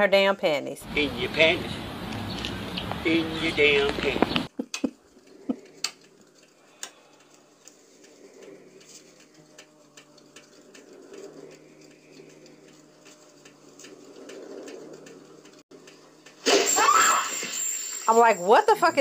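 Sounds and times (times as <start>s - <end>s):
soft ticks and clicks: 5.5s - 16.4s.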